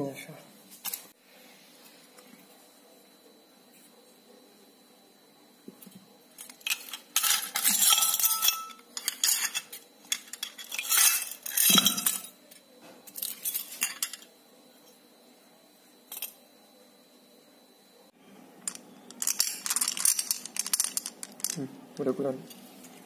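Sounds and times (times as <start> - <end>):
small parts clattering in glass jar: 6.3 - 12.4, 13.1 - 14.3, 18.7 - 23.0.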